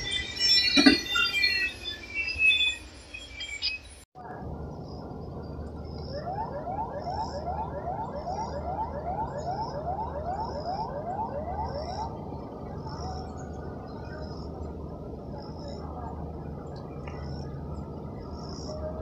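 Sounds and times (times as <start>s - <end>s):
siren rising whoops: 5.8s - 13.6s.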